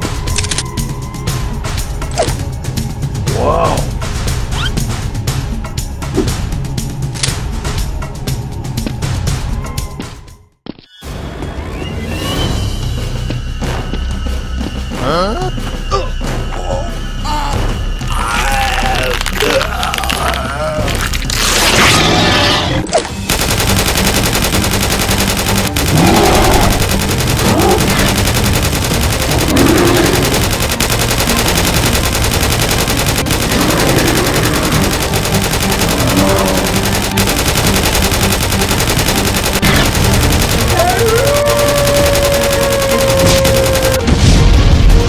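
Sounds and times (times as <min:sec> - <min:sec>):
automatic gunfire: 0:23.3 - 0:44.0
voice cries: 0:40.7 - 0:44.0.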